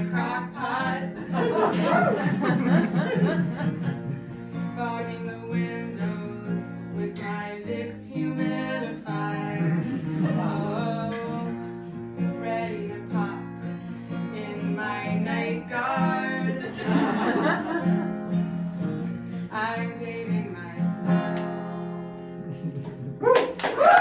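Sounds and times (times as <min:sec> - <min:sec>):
woman singing: 0:00.0 - 0:02.2, 0:04.5 - 0:17.1, 0:19.4 - 0:21.4
acoustic guitar strumming: 0:00.0 - 0:23.2.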